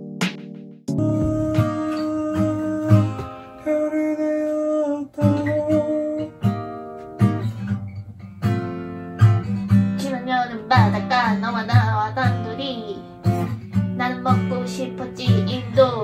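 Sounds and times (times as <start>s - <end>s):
acoustic guitar strumming: 0.0s - 16.0s
low bass notes: 0.9s - 3.3s
person singing: 0.9s - 6.4s.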